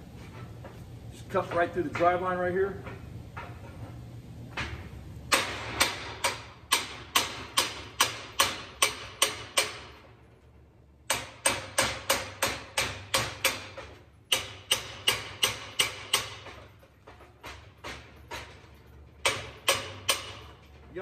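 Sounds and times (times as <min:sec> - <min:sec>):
hammer striking steel: 0:04.6 - 0:10.1, 0:11.1 - 0:21.0.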